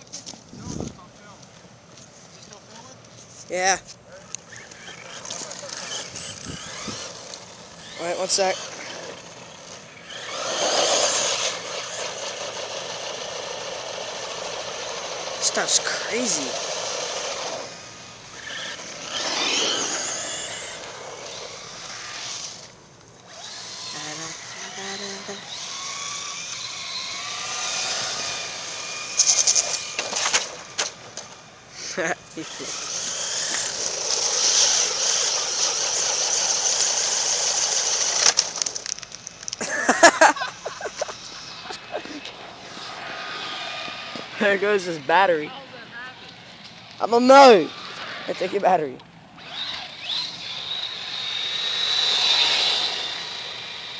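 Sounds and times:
rc car motor whine: 2.3 - 53.9
tyre noise on asphalt: 32.7 - 40.1, 40.9 - 44.5.

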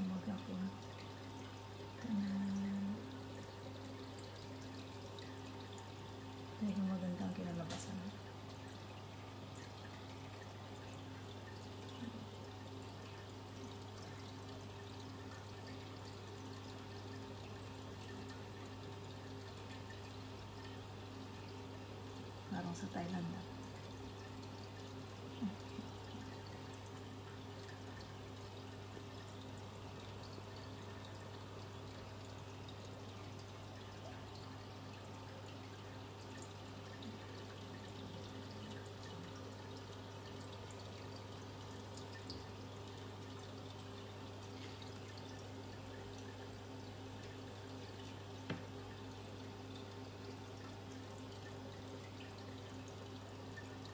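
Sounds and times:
low even hum: 0.0 - 53.9
trickle of water: 0.0 - 53.9.

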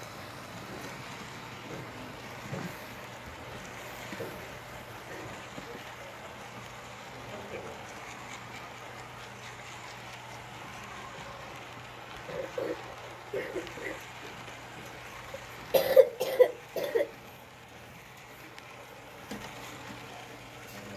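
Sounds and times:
person coughing: 15.7 - 17.1.

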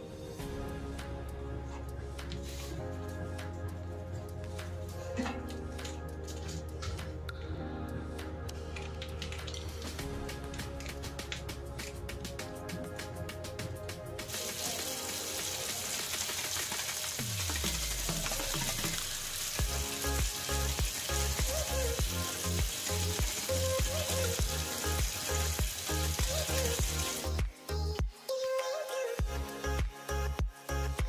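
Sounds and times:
music with a steady beat: 0.0 - 15.5, 17.2 - 31.0
steady sizzling hiss: 14.1 - 27.4.

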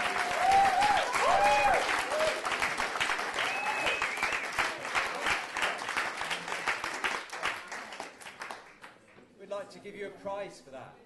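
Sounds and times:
people cheering: 0.0 - 5.4
audience clapping: 0.0 - 9.2.

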